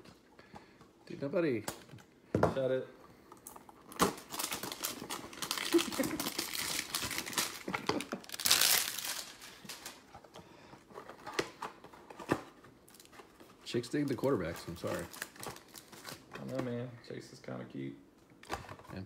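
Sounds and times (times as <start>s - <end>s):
plastic wrapper crinkling: 3.4s - 10.1s, 14.2s - 16.6s.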